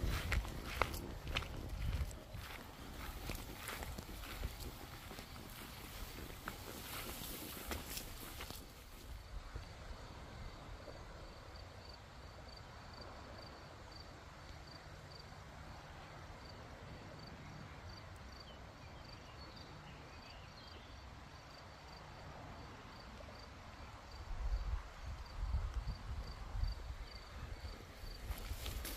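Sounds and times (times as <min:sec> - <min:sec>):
insect chirping: 0:00.0 - 0:14.0, 0:25.0 - 0:28.9.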